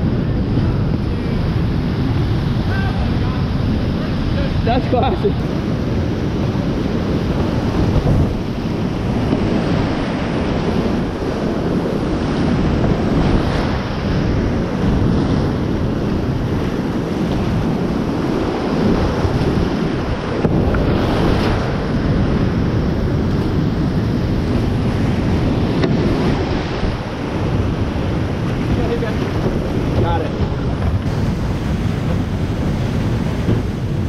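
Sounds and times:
whitewater rushing: 0.0 - 34.0
wind buffeting microphone: 0.0 - 34.0.

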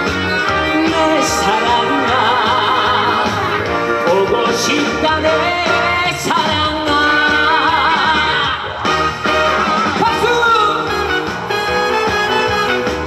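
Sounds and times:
amplified band backing track: 0.0 - 13.0
man singing into microphone: 0.4 - 8.9.

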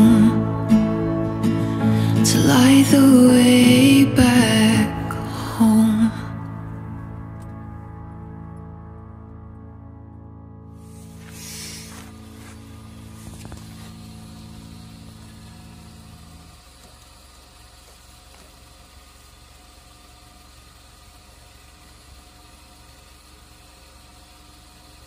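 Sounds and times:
car engine idling: 10.8 - 25.0.

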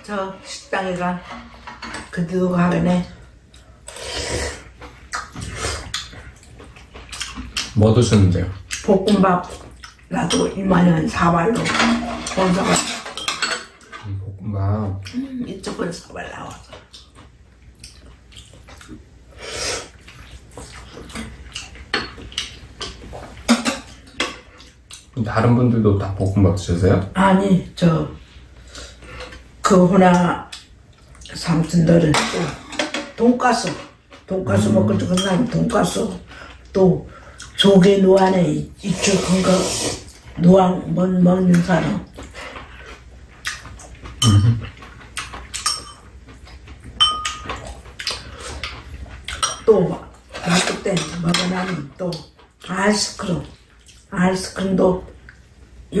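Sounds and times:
people eating noodles: 0.1 - 25.1, 28.2 - 55.5
utensils clinking on ceramic bowls: 10.2 - 14.1, 32.1 - 35.9, 44.2 - 46.1, 47.0 - 47.7, 49.3 - 51.9
noodle slurp: 38.9 - 40.1.

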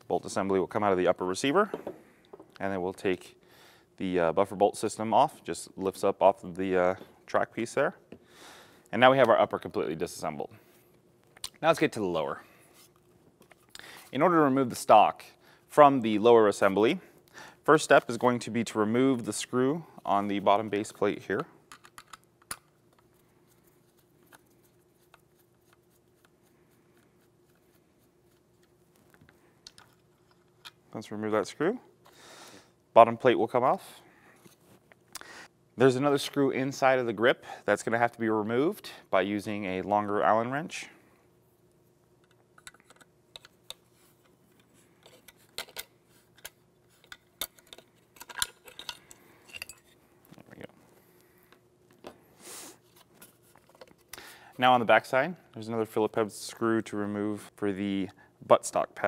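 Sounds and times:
faint steady hum: 0.0 - 59.0
small parts set down: 45.0 - 50.5.

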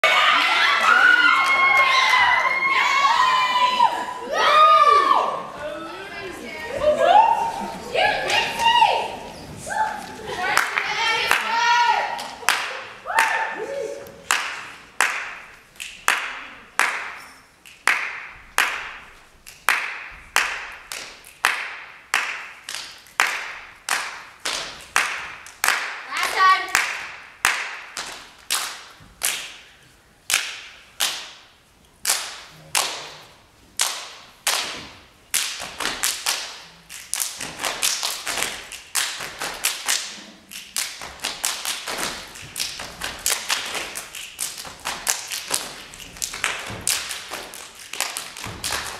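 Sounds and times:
group clapping in rhythm: 10.3 - 48.9.

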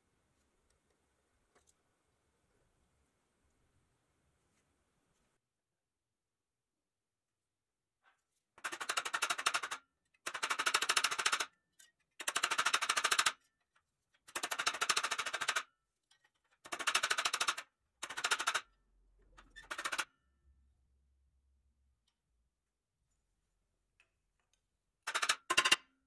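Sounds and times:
hammer tapping toy truck metal: 25.1 - 25.9.

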